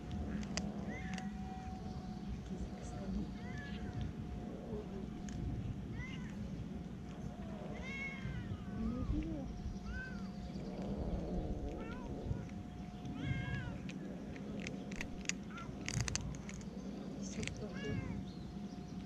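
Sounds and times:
low background rumble: 0.0s - 19.0s
cat meowing: 7.7s - 9.2s, 11.6s - 13.9s.

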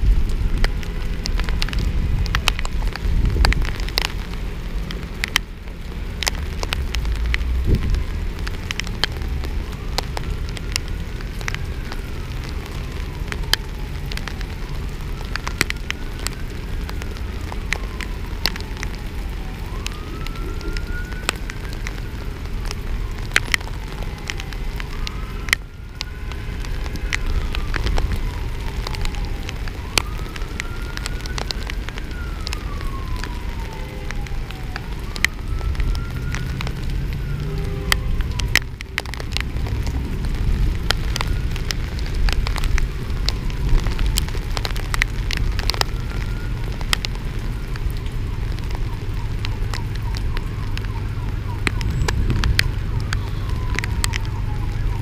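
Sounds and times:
emergency vehicle siren wailing: 0.0s - 55.0s
heavy rain: 0.0s - 55.0s
raindrops clicking on camera: 0.0s - 55.0s.

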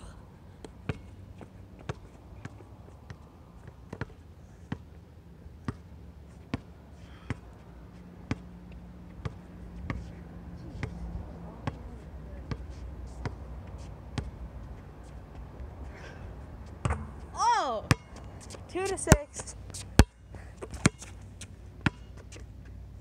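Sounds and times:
basketball bouncing on hard court: 11.6s - 11.8s, 16.8s - 17.2s, 17.9s - 21.1s, 21.8s - 22.2s.

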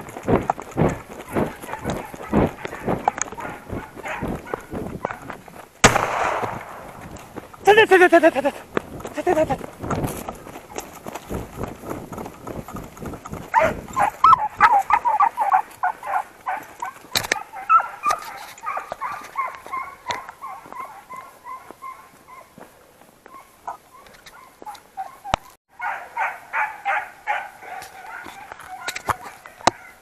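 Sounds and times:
footsteps on dry ground: 0.0s - 30.0s
hound yelping barks: 0.8s - 5.4s, 13.5s - 22.6s, 23.2s - 30.0s.

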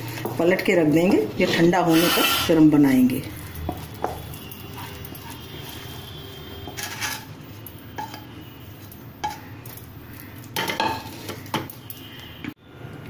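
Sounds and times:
wooden spatula scraping frying pan: 0.0s - 2.7s, 3.3s - 7.4s.

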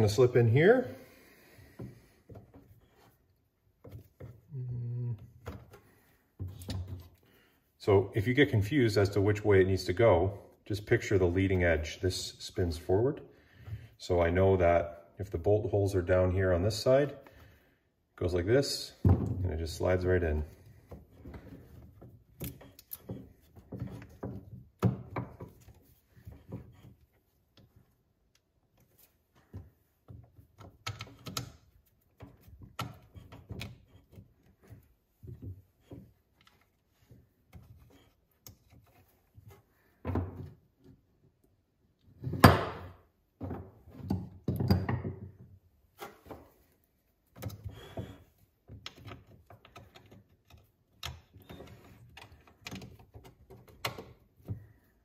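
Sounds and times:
knocks and thunks of rubber paddle: 19.0s - 19.5s, 42.2s - 45.4s.

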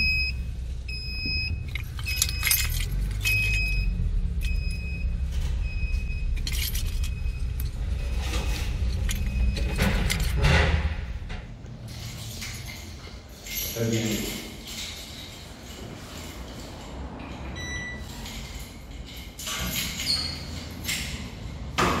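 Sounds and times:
car engine rumbling: 0.0s - 22.0s
jangling clatter: 1.6s - 3.8s, 6.3s - 10.6s, 11.8s - 17.2s.

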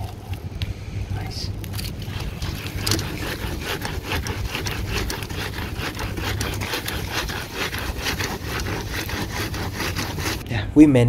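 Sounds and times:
scrubbing a metal grill grid: 1.9s - 10.4s.

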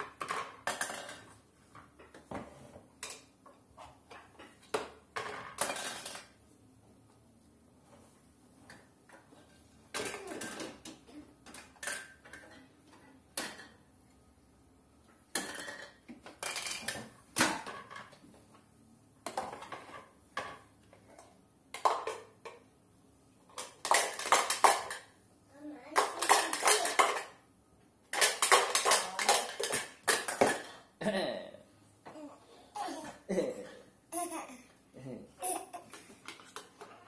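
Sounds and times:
toy pots and pans clattering: 0.0s - 1.4s, 4.1s - 6.4s, 9.4s - 12.7s, 15.3s - 18.2s, 23.5s - 25.2s, 25.9s - 27.4s, 28.1s - 30.9s, 35.4s - 37.0s.

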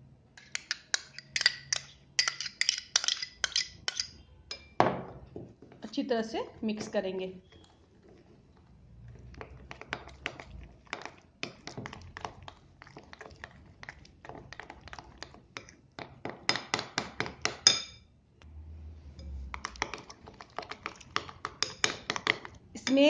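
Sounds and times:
metal spoon stirring in bowl: 0.4s - 4.8s, 5.7s - 18.0s, 19.1s - 23.0s.

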